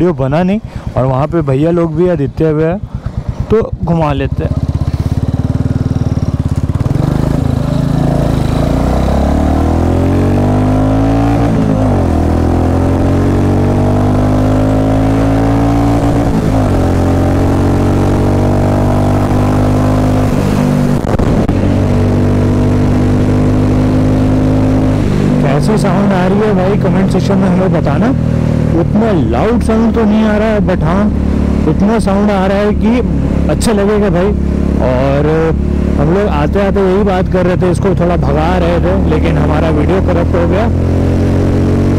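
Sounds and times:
motorcycle engine pulling away: 3.3 - 41.9.

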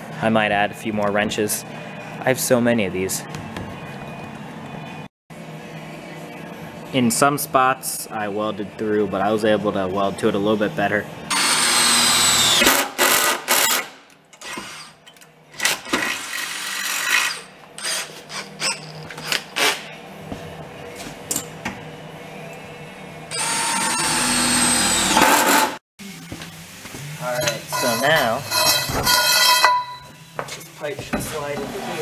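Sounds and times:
power tool whining: 23.3 - 25.8.

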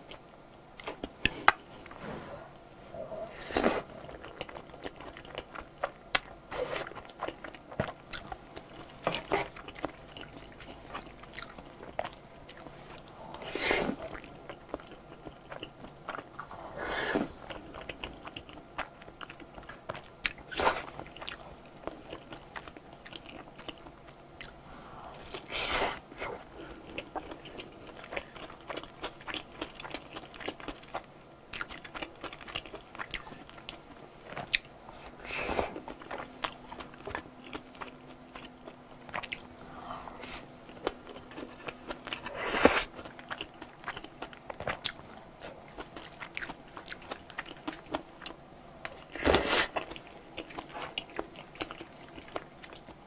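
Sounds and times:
wet chewing: 3.4 - 24.6, 40.2 - 53.0.

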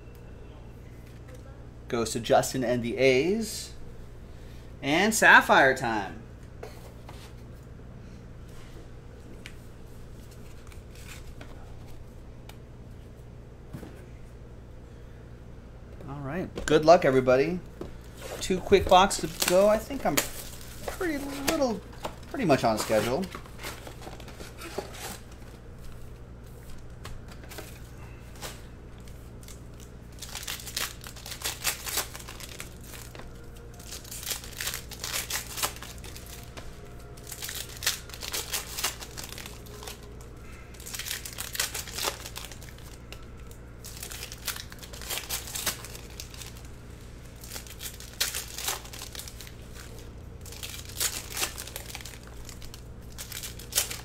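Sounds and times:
steady low hum: 0.0 - 54.0
wrappers tearing and crinkling: 10.2 - 11.7, 18.0 - 26.1, 26.7 - 54.0.

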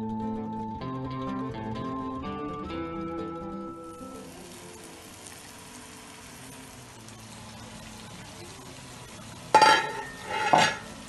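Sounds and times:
oil sizzling in frying pan: 3.4 - 11.0
metallic cookware clanks: 9.5 - 11.0.

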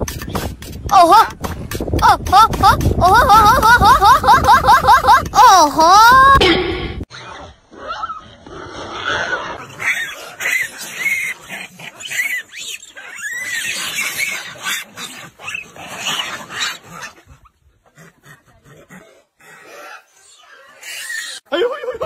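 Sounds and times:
monkeys squealing and screeching: 9.1 - 17.4, 19.5 - 21.5.

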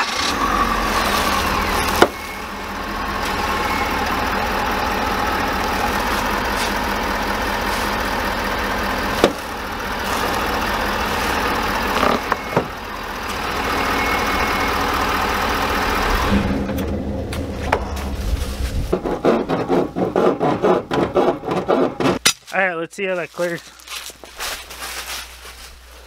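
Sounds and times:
diesel engine idling: 0.0 - 20.2.

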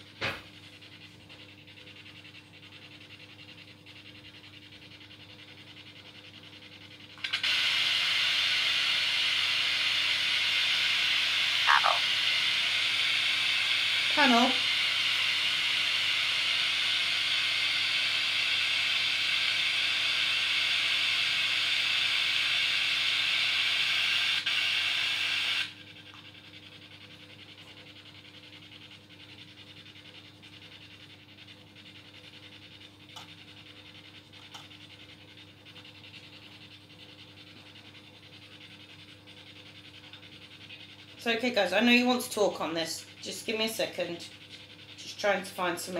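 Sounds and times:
loud static hiss: 11.7 - 12.1.

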